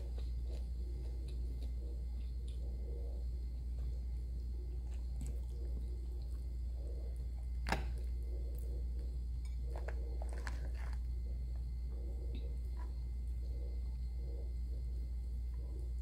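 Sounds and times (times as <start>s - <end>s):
steady low hum: 0.0s - 16.0s
wet chewing: 4.7s - 11.7s.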